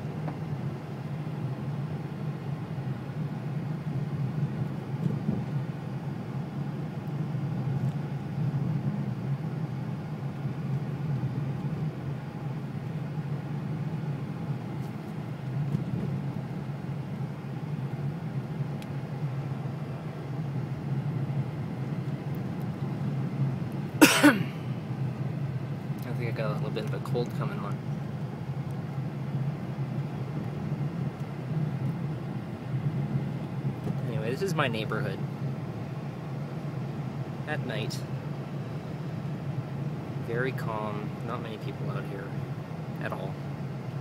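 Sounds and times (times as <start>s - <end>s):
car engine hum: 0.0s - 44.0s
tyre and road noise: 14.0s - 38.5s.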